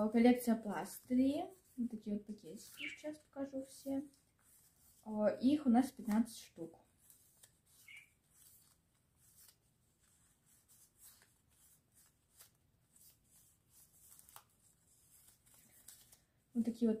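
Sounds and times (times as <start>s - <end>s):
paper rustling and flicking: 5.8s - 16.4s.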